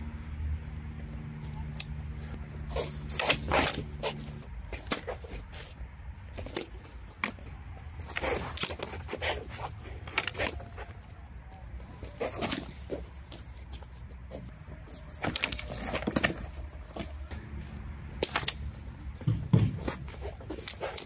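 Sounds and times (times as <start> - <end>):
swords clacking: 18.1 - 18.7.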